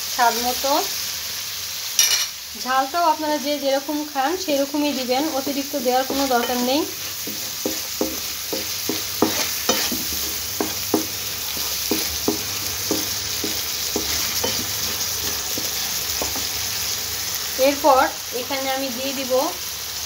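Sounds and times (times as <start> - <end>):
onions sizzling in a frying pan: 0.0 - 20.0
spatula scraping a pan: 4.3 - 17.2.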